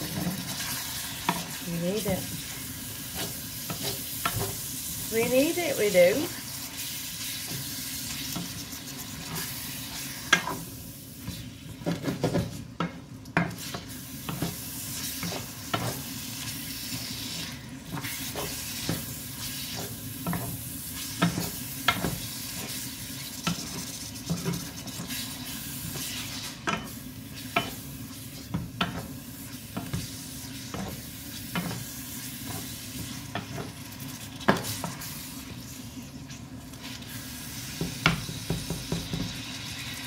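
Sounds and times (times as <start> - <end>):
wooden spoon scraping a pan: 0.0 - 12.7, 13.4 - 37.2
meat sizzling in a frying pan: 0.0 - 40.0.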